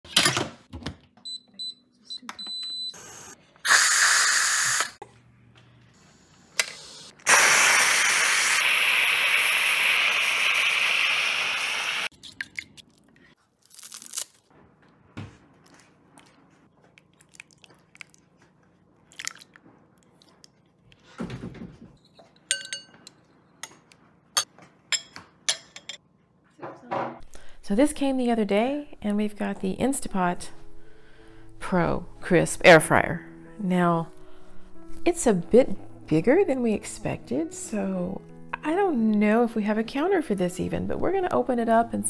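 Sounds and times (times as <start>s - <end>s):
pressure cooker steam hiss: 3.1s - 5.0s, 6.7s - 12.1s
spoons clinking in ceramic bowls: 22.4s - 23.2s, 24.9s - 26.0s.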